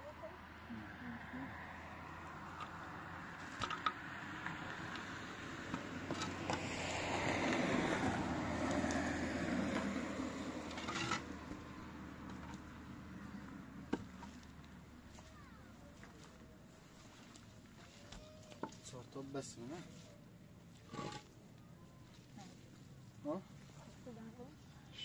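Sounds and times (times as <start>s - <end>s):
vehicle passing by: 0.0s - 18.0s.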